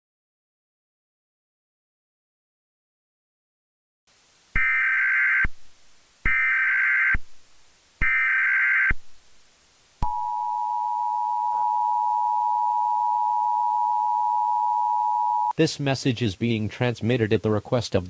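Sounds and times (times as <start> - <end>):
digital data tone bursts: 4.6 - 5.5
two-tone attention signal: 10.0 - 15.5.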